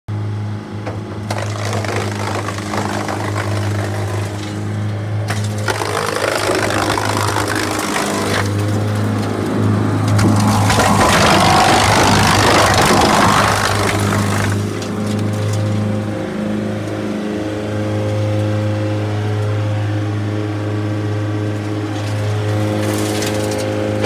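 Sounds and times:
wood chipper engine hum: 0.1 - 24.0
wood cracking and splintering: 0.9 - 16.0, 21.9 - 24.0.

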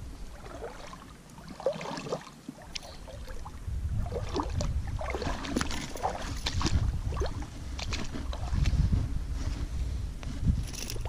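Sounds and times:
low rumble: 2.9 - 11.0.

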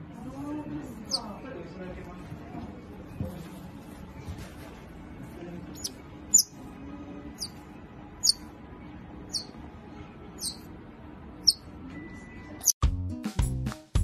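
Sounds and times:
otter chirping squeaks: 1.1 - 1.4, 5.8 - 6.6, 7.4 - 7.6, 8.2 - 8.4, 9.3 - 9.6, 10.4 - 10.7, 11.4 - 11.7.

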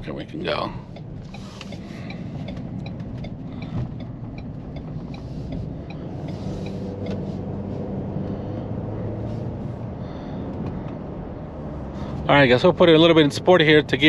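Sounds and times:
car engine and road drone: 0.0 - 14.0
light regular ticking: 0.2 - 7.6.

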